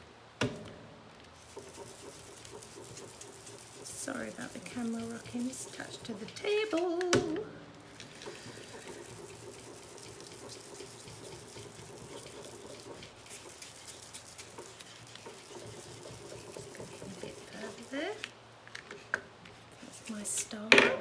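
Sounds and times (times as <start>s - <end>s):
foam tool rubbing on cardstock: 1.4s - 6.8s, 8.0s - 18.3s, 19.7s - 20.4s.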